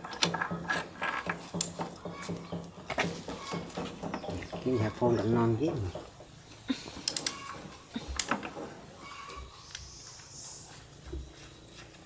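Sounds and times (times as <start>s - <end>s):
faint clatter of small parts: 6.0s - 9.8s
sharp mechanical clicks: 7.0s - 8.4s.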